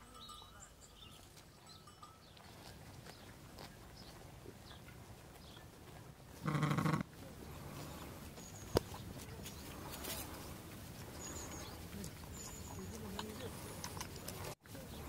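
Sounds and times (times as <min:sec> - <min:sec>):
sheep bleating: 0:06.4 - 0:07.0.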